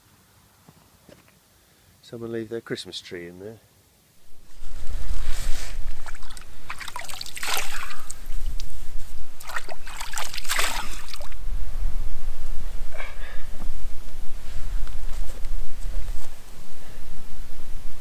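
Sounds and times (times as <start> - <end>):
wind buffeting microphone: 4.2 - 18.0
water splashing by hand: 4.6 - 11.4.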